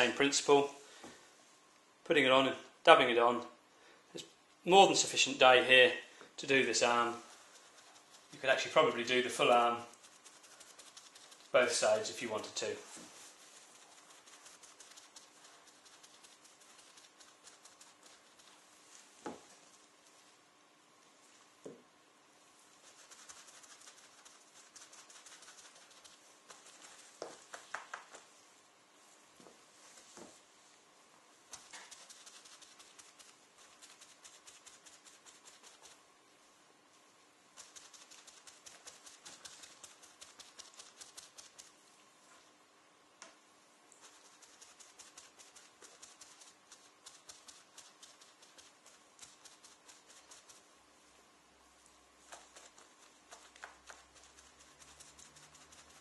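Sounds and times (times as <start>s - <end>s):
sponge dabbing soft taps: 6.2s - 20.4s, 21.0s - 22.0s, 22.6s - 36.0s, 51.8s - 56.0s.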